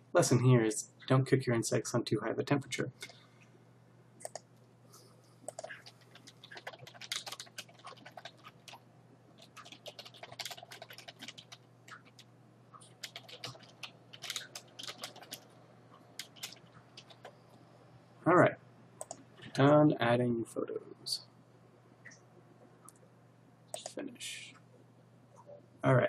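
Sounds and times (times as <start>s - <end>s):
computer keyboard typing: 5.5s - 8.8s, 9.4s - 15.6s, 16.2s - 17.4s.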